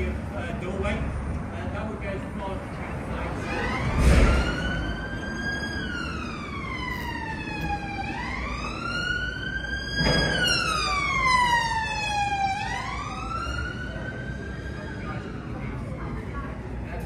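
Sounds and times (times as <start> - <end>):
siren wailing: 3.3 - 15.8.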